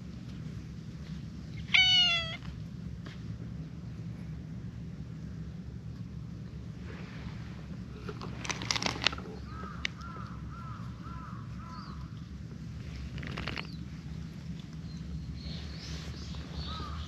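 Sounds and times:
bird calling: 9.2s - 12.2s, 15.4s - 17.0s.

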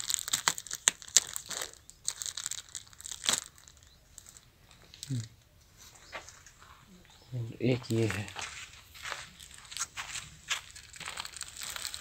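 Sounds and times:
plastic bags crinkling: 0.0s - 5.3s, 7.8s - 12.0s.

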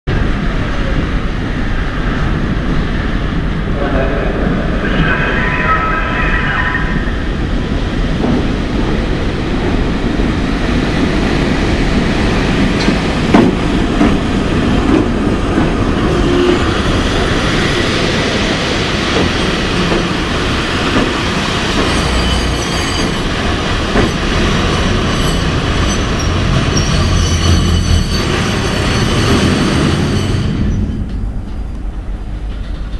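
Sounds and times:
train wheels rumbling on rails: 0.1s - 32.9s
wheel squeal: 21.4s - 23.4s, 24.7s - 31.0s.

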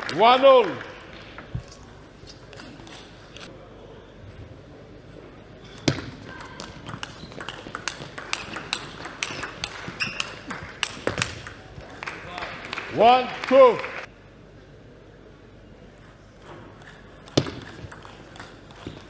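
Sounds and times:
table tennis ball clicking: 6.3s - 11.9s.

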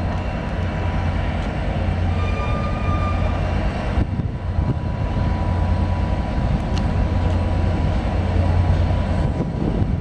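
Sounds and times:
diesel locomotive rumble: 0.0s - 10.0s.

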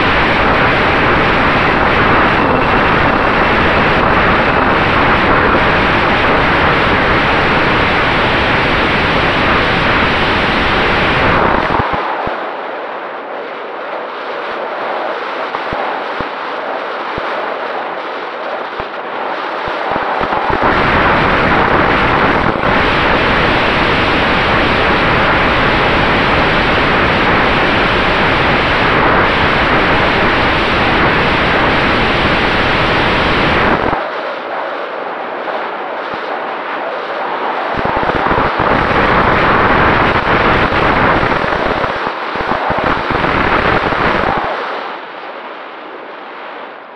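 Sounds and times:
wind buffeting microphone: 19.8s - 34.0s.

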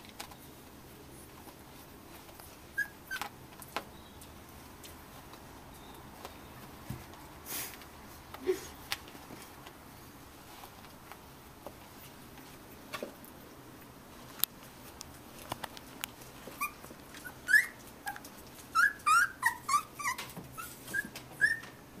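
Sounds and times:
puppies whimpering and squeaking: 2.5s - 3.3s, 16.4s - 21.9s.

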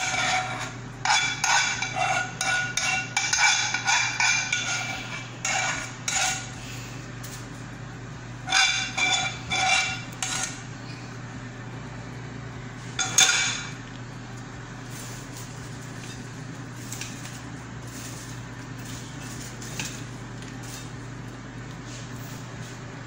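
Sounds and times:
steady low hum: 0.0s - 23.0s
metal utensil clinking on pan: 1.1s - 6.5s.

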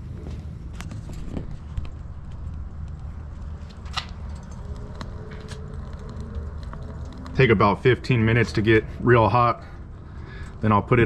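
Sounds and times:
fire crackling and popping: 0.0s - 11.0s
fire rumbling: 0.0s - 11.0s.

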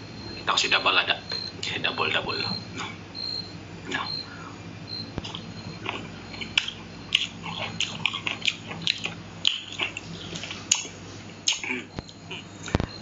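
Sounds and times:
person chewing: 5.2s - 12.7s.

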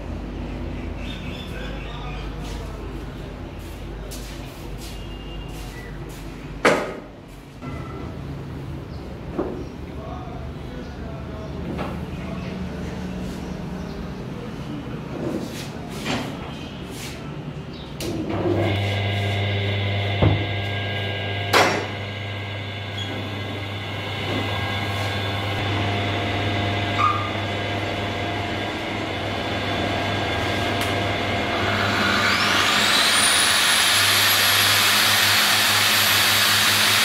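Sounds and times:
angle grinder whining: 18.5s - 37.0s
lathe humming: 18.5s - 37.0s.

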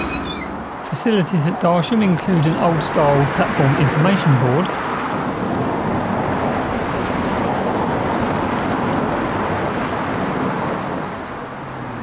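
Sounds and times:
road traffic: 0.0s - 12.0s.

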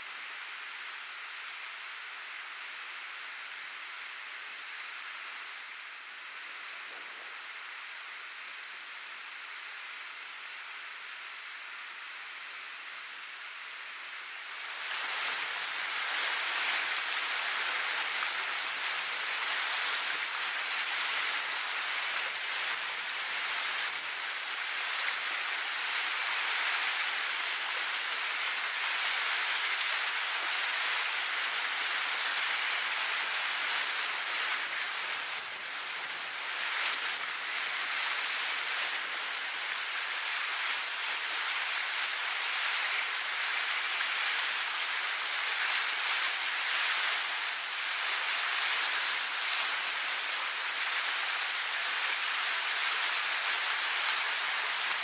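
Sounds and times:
steady water hiss: 0.0s - 55.0s.

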